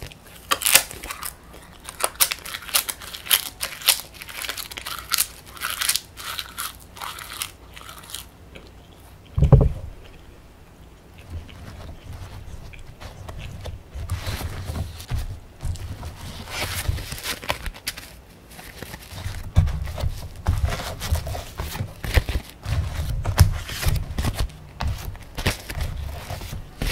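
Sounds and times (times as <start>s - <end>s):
crunching and chewing paper: 0.0s - 9.4s, 11.2s - 26.9s
dull thump: 9.4s - 9.9s.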